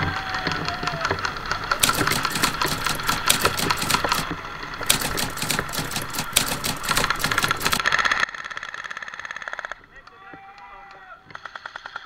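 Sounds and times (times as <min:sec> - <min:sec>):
airsoft guns firing bursts: 0:01.8 - 0:07.8.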